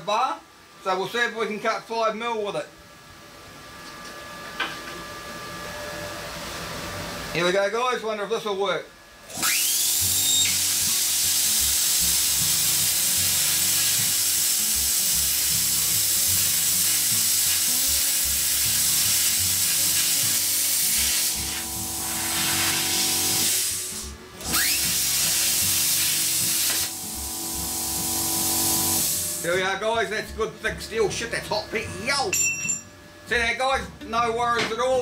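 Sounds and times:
air compressor humming: 9.2s - 34.4s
plasma cutter arc hissing: 9.4s - 29.7s.

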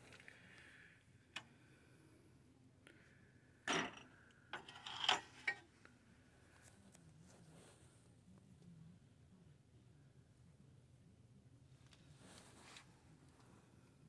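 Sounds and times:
ceramic mugs clinking on metal shelf: 3.7s - 5.6s.

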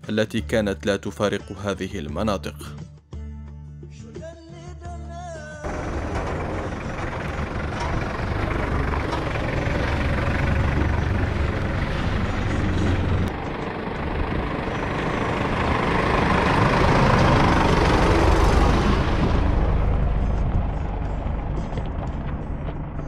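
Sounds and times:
low rumble: 5.6s - 23.0s
road and wind noise: 5.7s - 23.0s.

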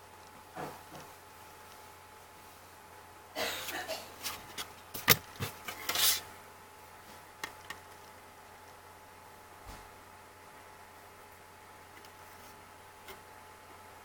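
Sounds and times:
packaging rustling and scraping: 4.2s - 6.3s.

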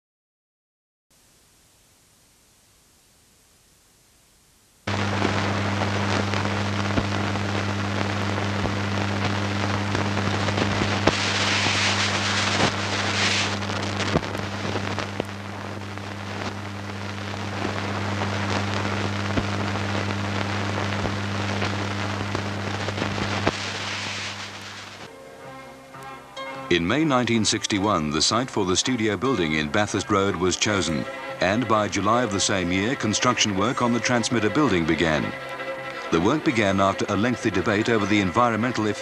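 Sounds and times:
recording hiss: 1.1s - 39.0s
low electrical hum: 1.2s - 39.0s
crackles and clicks: 1.3s - 25.1s.

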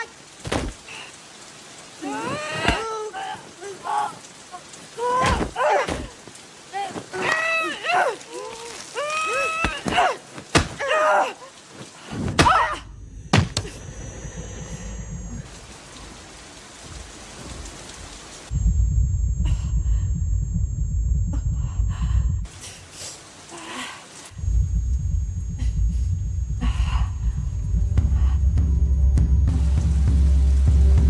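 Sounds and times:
loud low rumbling: 18.5s - 22.5s, 24.4s - 31.0s.

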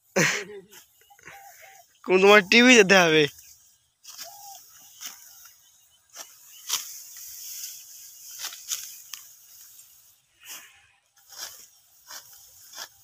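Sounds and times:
rustling of stalks: 0.2s - 13.0s
rice stalks cut by hand: 3.4s - 13.0s.

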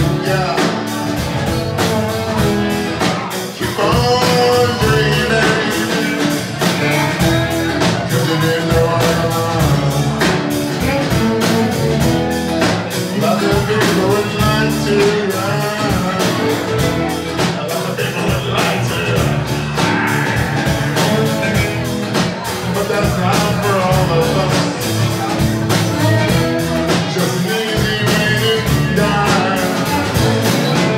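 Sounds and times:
drum kit: 0.0s - 30.9s
strummed acoustic guitar: 0.0s - 30.9s.

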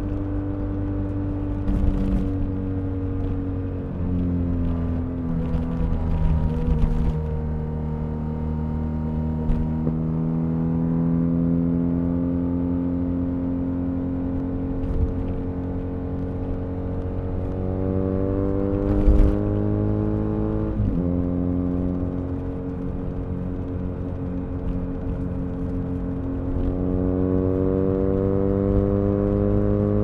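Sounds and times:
motorcycle engine accelerating: 0.0s - 15.4s, 16.7s - 30.0s.

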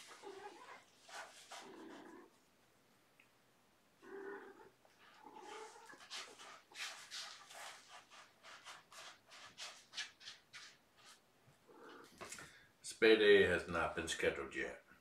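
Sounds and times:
rough scraping on cardboard: 0.0s - 2.2s, 5.4s - 11.2s.

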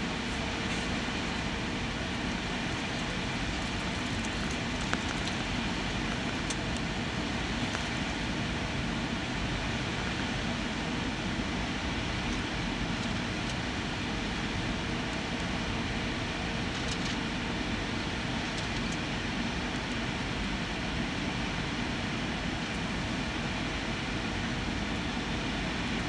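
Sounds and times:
jet engines roaring in cabin: 0.0s - 26.0s.

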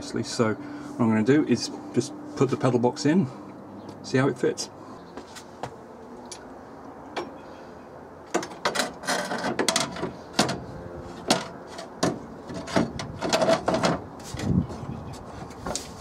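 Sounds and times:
metal clunks and rattles: 8.3s - 14.6s.

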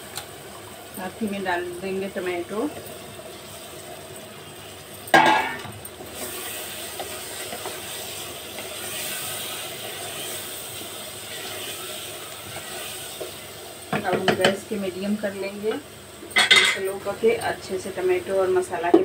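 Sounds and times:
tomatoes sizzling in hot oil: 0.0s - 19.0s
spatula stirring: 6.1s - 13.6s.

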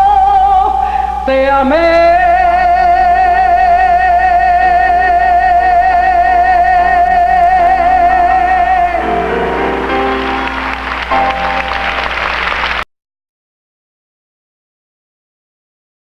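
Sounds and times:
woman singing with vibrato: 0.0s - 10.2s
band chords and plucked strings: 7.4s - 12.7s
applause: 9.8s - 12.9s.

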